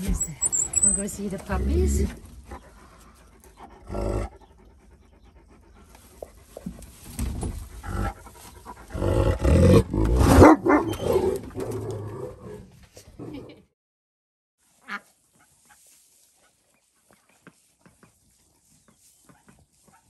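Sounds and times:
dog panting: 2.3 - 6.8.

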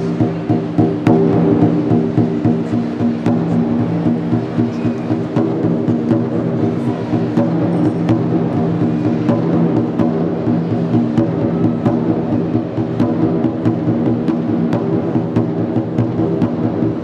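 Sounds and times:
barrel drum struck rapidly: 0.0 - 17.0.

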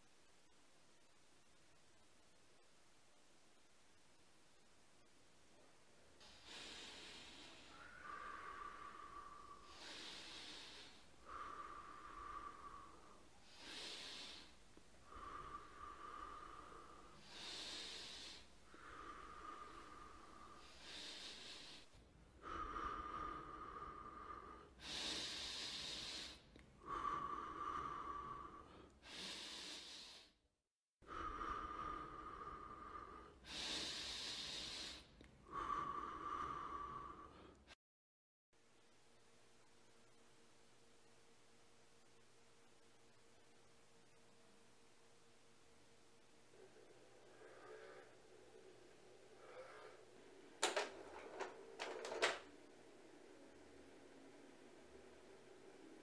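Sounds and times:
woman breathing laboriously: 5.6 - 30.4, 31.0 - 37.8, 45.8 - 56.0
whistling wheeze: 7.4 - 10.2.

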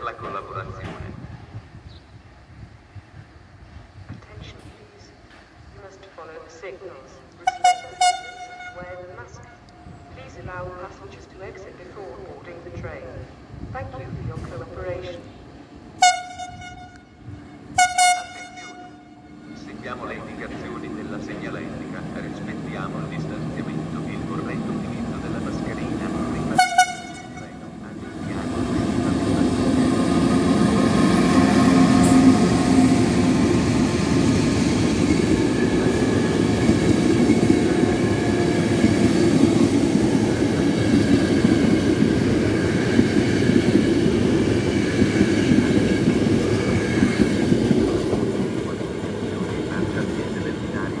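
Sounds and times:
train wheels rumbling on rails: 0.0 - 6.4, 7.3 - 51.0
locomotive horn blast: 7.4 - 9.8, 16.0 - 19.8, 24.7 - 33.5.

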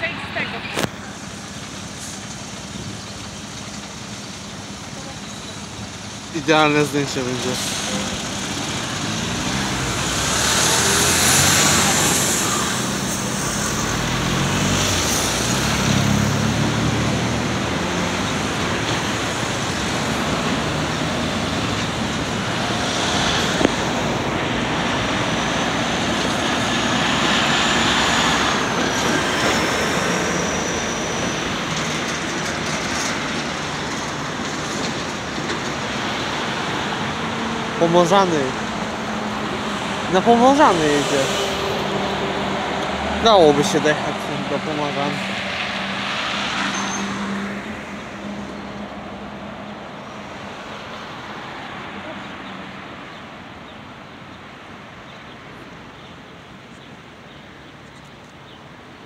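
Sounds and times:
road traffic: 0.0 - 59.0
tram motors rising in pitch: 0.2 - 36.4.

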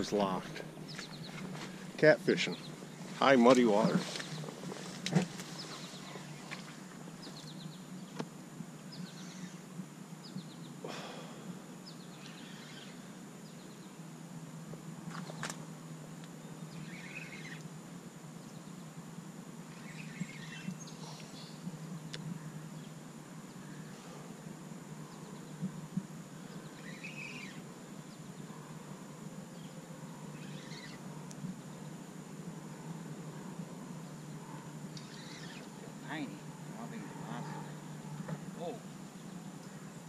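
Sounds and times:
low background hum: 0.0 - 40.0
faint bird chirps: 8.9 - 11.2, 11.8 - 14.1, 16.4 - 17.8, 19.7 - 24.2, 25.0 - 32.0, 32.7 - 39.9.

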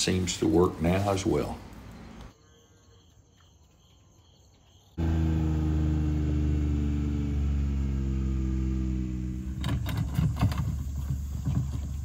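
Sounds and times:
motor low drone: 5.0 - 11.3.

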